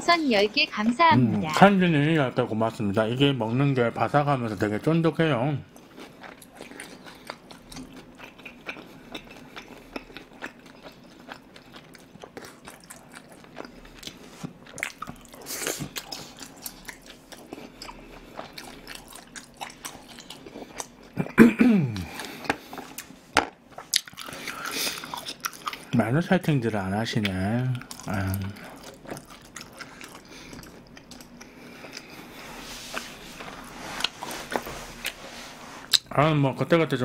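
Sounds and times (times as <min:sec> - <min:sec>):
chewing crispy food: 0:05.7 - 0:21.4, 0:22.0 - 0:26.0, 0:26.7 - 0:35.2.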